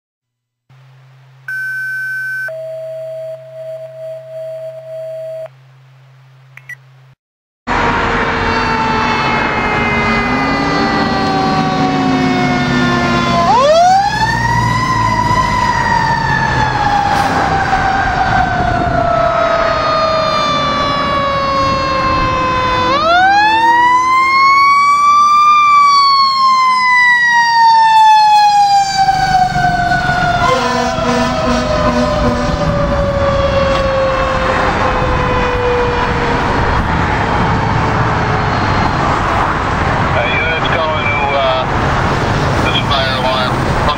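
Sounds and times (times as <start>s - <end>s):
alert tones and beep: 1.5s - 5.5s, 6.6s - 6.8s
siren winding up and falling: 1.5s - 5.5s, 7.8s - 36.9s
siren long falling wail: 7.7s - 42.8s.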